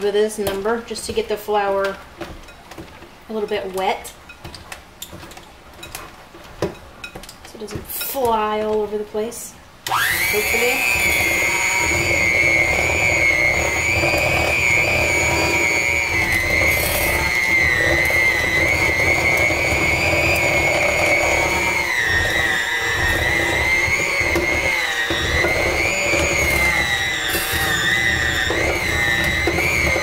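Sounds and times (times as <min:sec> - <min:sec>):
electric hand mixer running: 0:09.9 - 0:30.0.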